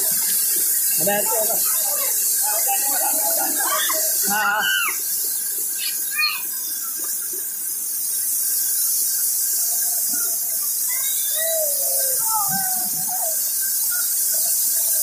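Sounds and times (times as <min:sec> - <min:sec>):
children calling and squealing: 0:00.0 - 0:07.2, 0:09.7 - 0:15.0
rushing river water: 0:00.0 - 0:08.8.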